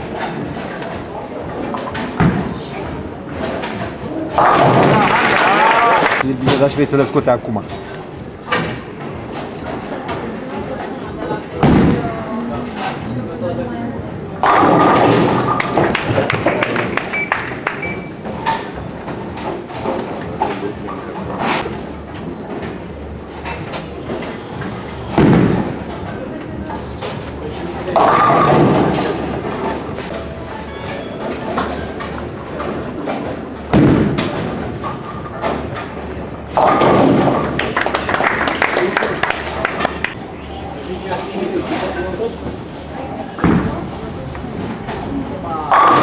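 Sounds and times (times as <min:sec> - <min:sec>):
bowling alley din: 0:00.0 - 0:13.3, 0:14.0 - 0:46.0
bowling ball crashing into pins: 0:03.4 - 0:06.2, 0:14.4 - 0:17.1, 0:25.1 - 0:26.0, 0:27.9 - 0:29.8, 0:32.6 - 0:35.7, 0:36.5 - 0:38.6
bowling pins clattering: 0:14.4 - 0:21.8, 0:27.9 - 0:40.2.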